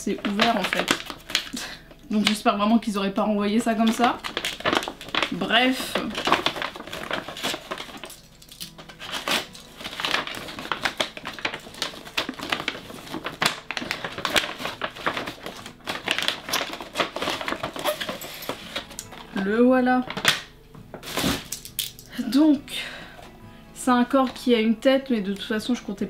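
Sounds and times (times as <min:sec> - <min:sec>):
paper bag rustling and crinkling: 0:00.0 - 0:02.5, 0:03.6 - 0:21.7.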